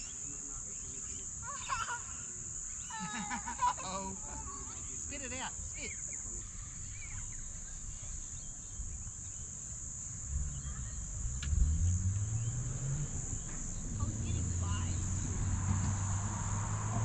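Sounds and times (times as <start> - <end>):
insects trilling: 0.0 - 17.0
low hum: 5.6 - 17.0.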